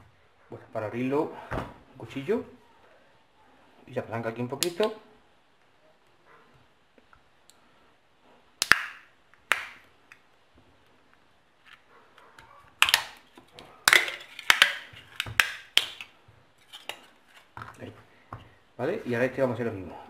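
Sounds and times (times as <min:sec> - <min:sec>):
plastic cover snapping and cracking: 0:12.8 - 0:16.1.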